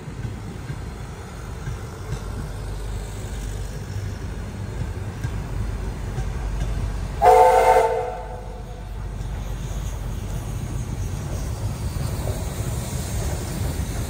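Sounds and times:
train rumbling past: 0:00.0 - 0:14.0
steam locomotive whistle: 0:07.2 - 0:08.9.

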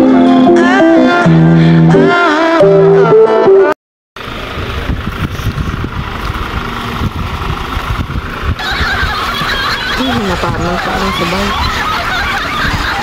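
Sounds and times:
music: 0:00.0 - 0:03.8
road traffic rumble: 0:04.2 - 0:13.0.

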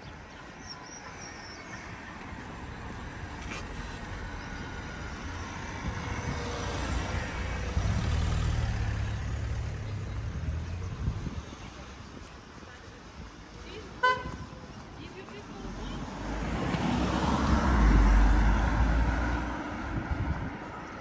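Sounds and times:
van engine driving past: 0:03.6 - 0:11.0, 0:15.7 - 0:20.0.

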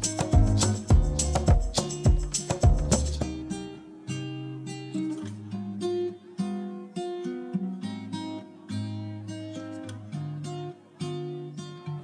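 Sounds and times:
acoustic guitar picking: 0:00.0 - 0:12.0.

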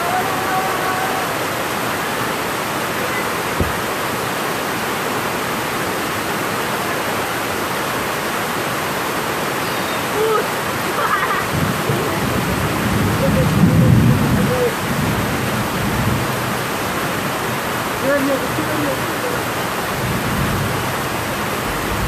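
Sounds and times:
heavy rain hissing: 0:00.0 - 0:22.0
thunder rumbling: 0:11.5 - 0:16.5.

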